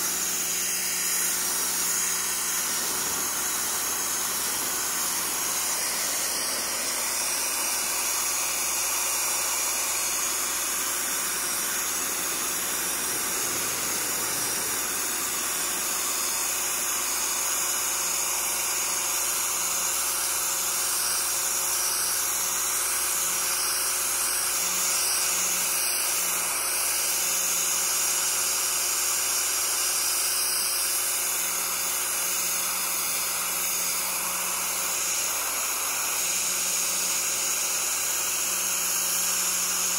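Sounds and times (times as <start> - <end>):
pressure washer water spray hissing: 0.0 - 17.5
washer motor and pump humming: 0.0 - 39.9.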